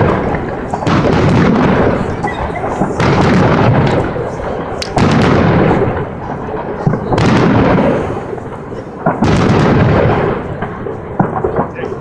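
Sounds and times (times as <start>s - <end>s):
firework shells bursting: 0.0s - 12.0s.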